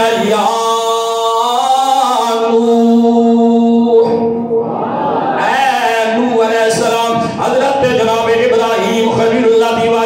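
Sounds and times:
man chanting: 0.0 - 4.6, 5.4 - 10.0.

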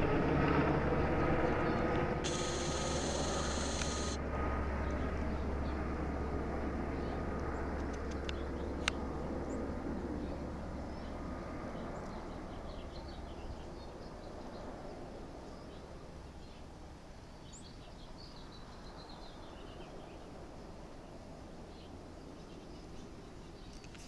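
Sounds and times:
helicopter rotor and engine: 0.0 - 15.4
birds chirping: 2.2 - 4.2.

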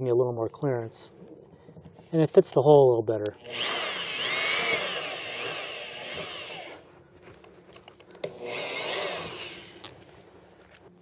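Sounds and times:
electric drill boring plastic: 3.4 - 6.8, 8.2 - 10.0.

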